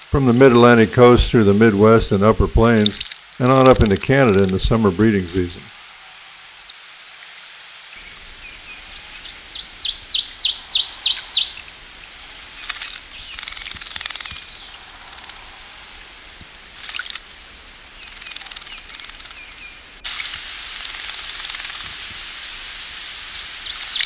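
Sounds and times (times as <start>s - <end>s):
background hiss: 0.0s - 24.0s
short bird calls: 8.0s - 22.0s.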